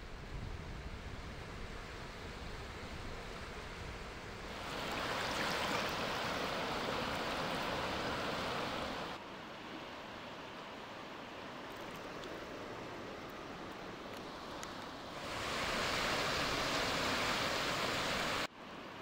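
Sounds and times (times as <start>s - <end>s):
rushing river water: 4.2s - 19.0s.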